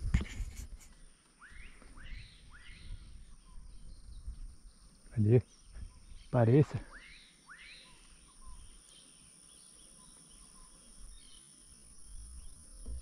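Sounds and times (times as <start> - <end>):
high-pitched insect drone: 5.9 - 13.0.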